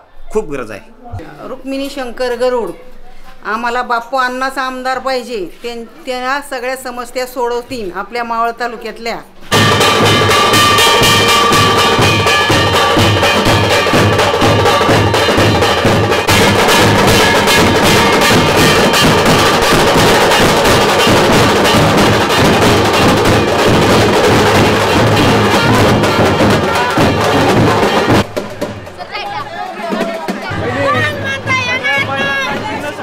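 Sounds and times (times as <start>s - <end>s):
trumpet playing: 9.5s - 28.3s
big drums beaten with sticks: 9.5s - 33.0s.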